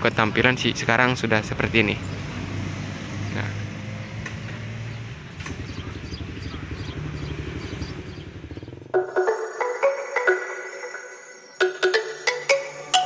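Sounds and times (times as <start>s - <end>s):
engine idling: 3.4s - 9.0s
background music: 8.9s - 13.0s.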